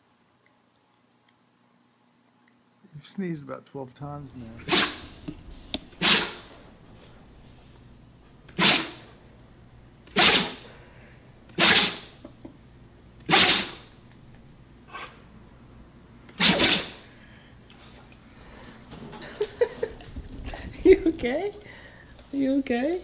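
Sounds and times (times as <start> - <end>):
dog sneezing: 4.6 - 6.6, 8.5 - 9.2, 10.1 - 10.7, 11.5 - 12.2, 13.3 - 13.9, 14.9 - 15.2, 16.3 - 17.1.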